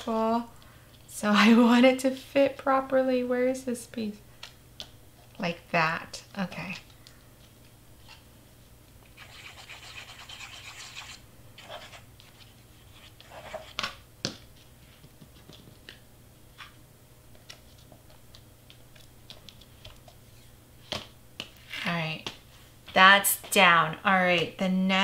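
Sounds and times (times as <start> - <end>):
hands rubbing cardstock: 9.2 - 13.8.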